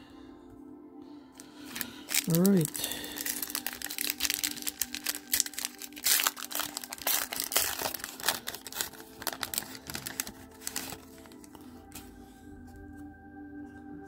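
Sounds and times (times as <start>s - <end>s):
wrapper tearing and crinkling: 1.6s - 11.6s.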